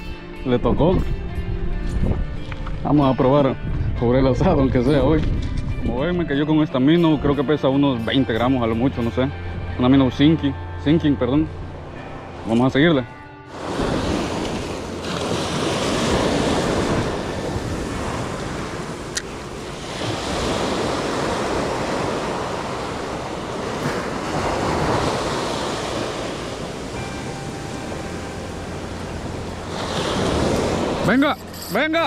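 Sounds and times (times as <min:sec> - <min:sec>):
wind rumbling on microphone: 0:00.0 - 0:06.4, 0:13.5 - 0:31.6
ocean surf breaking on beach: 0:13.5 - 0:31.4.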